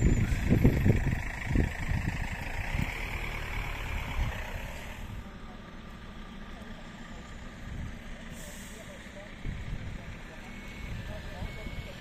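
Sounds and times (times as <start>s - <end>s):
wind buffeting microphone: 0.0s - 3.2s
fire engine idling hum: 0.0s - 12.0s.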